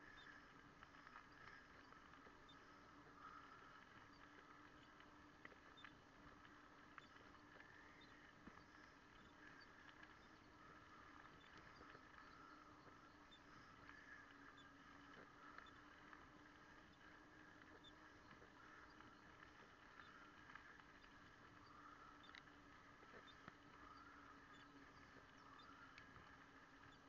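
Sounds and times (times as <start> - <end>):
faint steady hum: 0.0 - 27.0
light ticks and clicks: 0.0 - 27.0.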